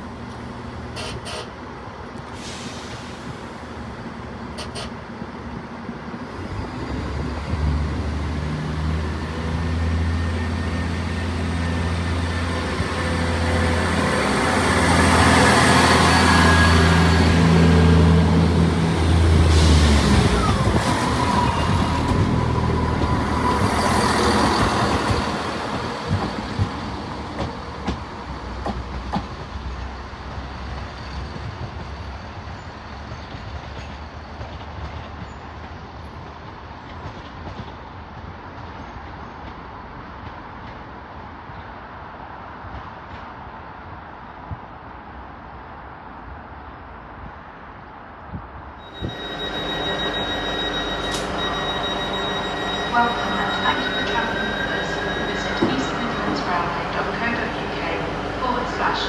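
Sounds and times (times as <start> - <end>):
diesel train engine drone: 0.0 - 36.9, 47.1 - 59.0
diesel train arriving: 0.0 - 37.0, 48.7 - 59.0
high squeal of train: 0.9 - 7.7, 8.9 - 40.6, 48.6 - 59.0.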